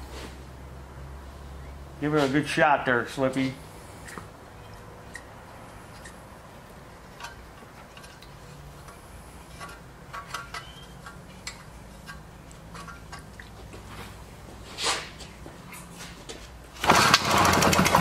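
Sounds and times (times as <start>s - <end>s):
clicks and taps from handling engine: 7.2s - 9.0s, 9.6s - 13.8s.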